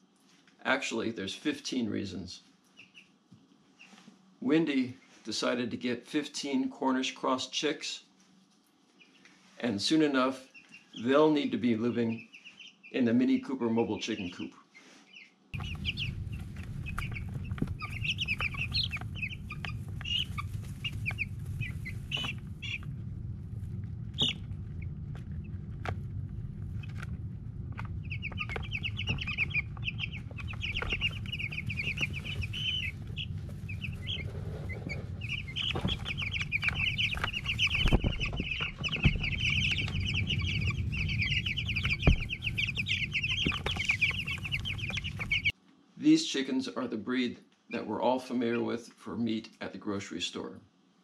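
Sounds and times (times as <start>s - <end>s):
chicks peeping: 2.5s - 4.1s, 8.5s - 45.5s
steady low hum: 15.5s - 45.5s
sharp taps and knocks: 41.8s - 45.3s.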